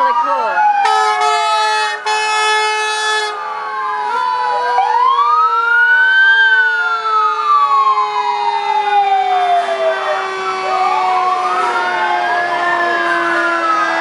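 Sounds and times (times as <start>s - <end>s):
fire truck sirens wailing: 0.0s - 14.0s
fire truck air horn blasts: 0.8s - 4.3s, 9.5s - 12.0s.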